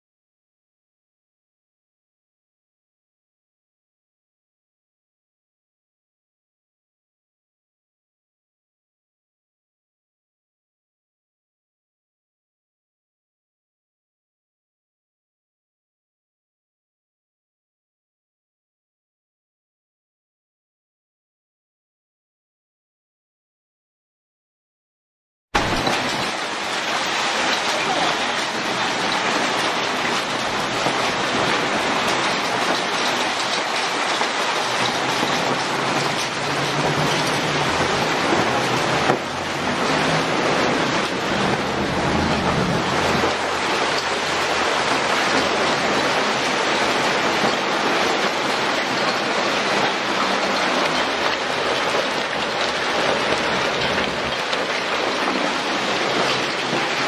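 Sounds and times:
hail and rain pelting street: 25.6s - 57.0s
car driving past on wet road: 35.8s - 45.0s.

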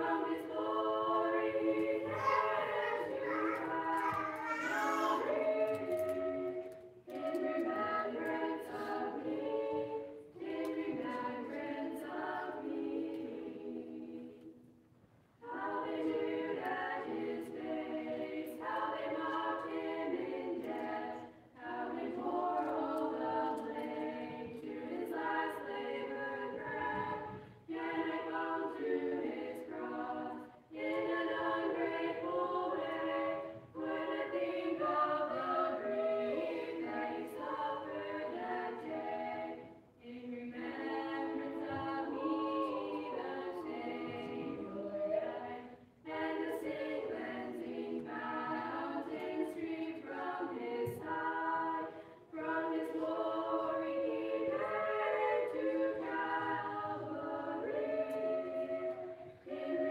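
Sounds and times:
children's choir singing: 0.0s - 14.7s, 15.4s - 59.9s.

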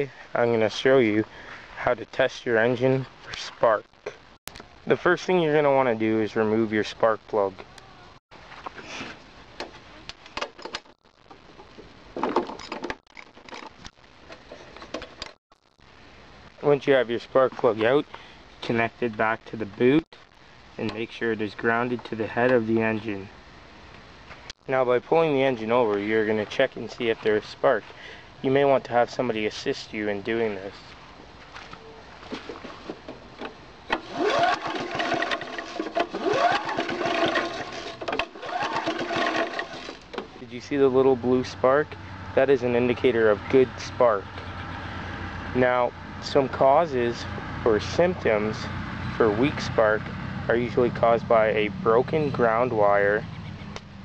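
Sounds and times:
recoil starter pull whir: 33.4s - 40.3s.

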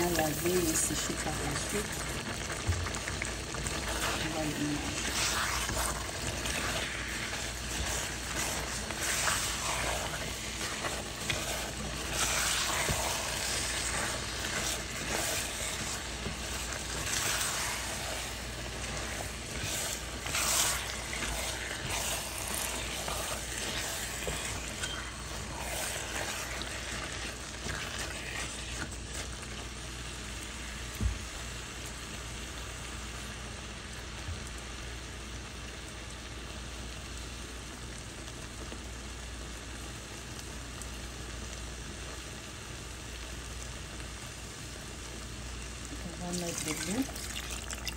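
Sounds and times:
rice sizzling in a pot: 0.0s - 47.9s
plastic spatula scraping: 3.5s - 29.6s.

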